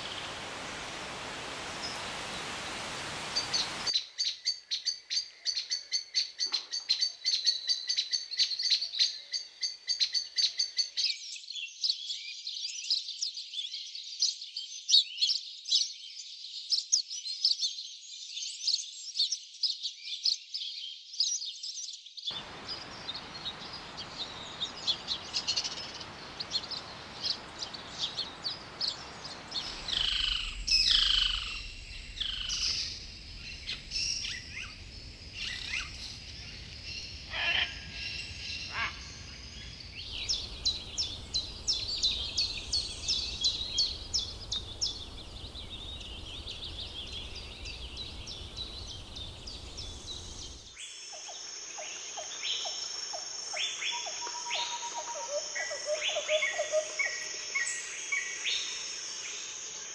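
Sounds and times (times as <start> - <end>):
downward sweeping bird calls: 0.0 - 4.0, 22.3 - 50.8
birds chirping: 0.0 - 10.7, 22.3 - 58.7.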